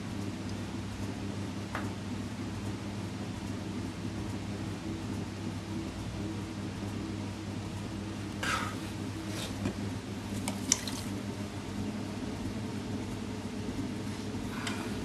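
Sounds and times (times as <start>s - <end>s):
steady low hum: 0.0s - 15.0s
water splashing and clay squelching: 10.3s - 11.2s.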